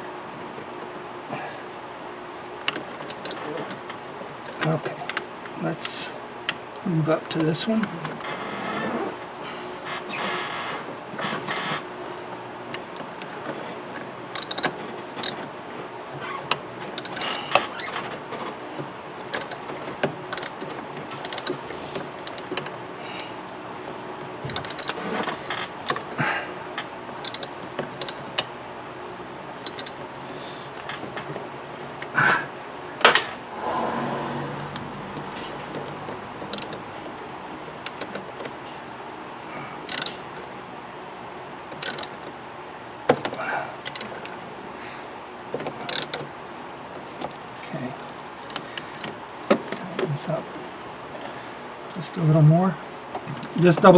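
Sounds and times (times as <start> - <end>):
hand ratchet clicking: 3.0 - 3.4, 14.4 - 15.4, 17.0 - 17.9, 19.3 - 19.6, 20.3 - 20.6, 21.2 - 21.6, 22.2 - 22.6, 24.5 - 25.0, 25.9 - 26.1, 27.2 - 28.2, 29.6 - 30.0, 36.5 - 36.8, 39.9 - 40.2, 41.8 - 42.1, 43.9 - 44.1, 45.9 - 46.2
tool clinking against metal: 3.1 - 3.5, 14.4 - 15.4, 17.0 - 17.9, 19.3 - 19.6, 20.3 - 20.6, 21.2 - 21.5, 22.3 - 22.5, 24.5 - 25.0, 27.2 - 28.2, 29.6 - 30.0, 36.5 - 36.8, 39.9 - 40.2, 41.8 - 42.1, 43.9 - 44.1, 45.9 - 46.2.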